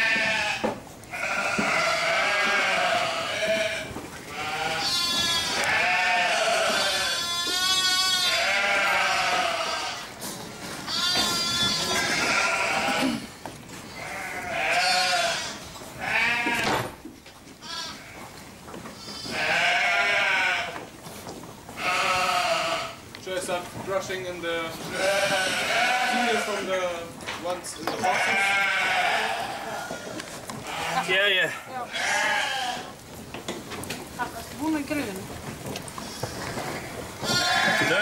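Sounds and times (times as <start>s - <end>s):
sheep bleating: 0.0s - 10.2s, 10.8s - 16.7s, 17.6s - 18.3s, 18.9s - 20.8s, 21.8s - 23.0s, 24.8s - 27.0s, 27.9s - 33.0s, 35.9s - 38.0s.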